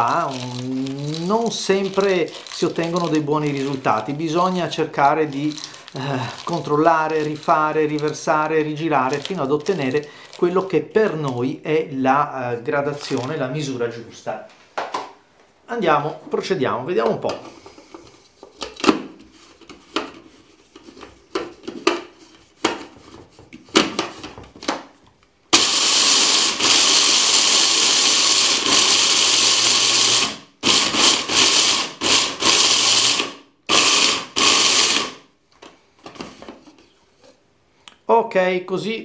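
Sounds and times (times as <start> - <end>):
electric chopper grinding: 25.5 - 35.2.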